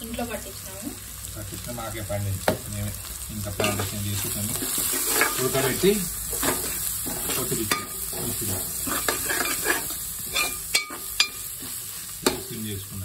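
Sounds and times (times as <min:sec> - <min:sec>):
onions sizzling in oil: 0:00.0 - 0:13.0
metal ladle scraping a pot: 0:04.5 - 0:11.8.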